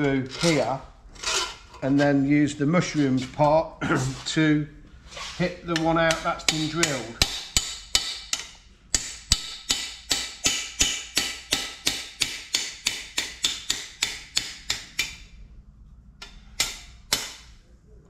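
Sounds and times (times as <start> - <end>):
hammer striking metal bar: 5.7 - 15.3, 16.2 - 17.6.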